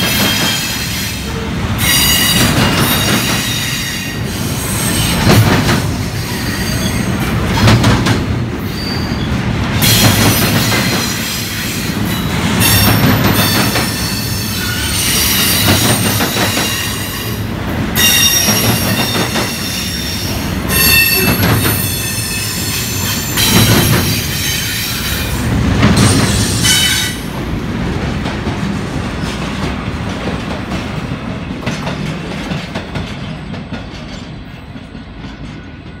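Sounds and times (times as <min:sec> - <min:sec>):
train cars rumbling: 0:00.0 - 0:36.0
steel wheels squealing: 0:00.1 - 0:05.2, 0:06.2 - 0:07.3, 0:08.6 - 0:17.4, 0:18.0 - 0:25.4.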